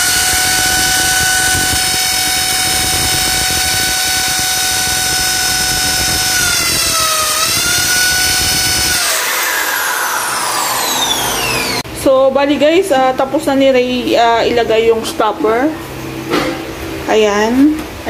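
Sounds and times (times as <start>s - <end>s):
electric drill boring into tile: 0.0s - 11.8s.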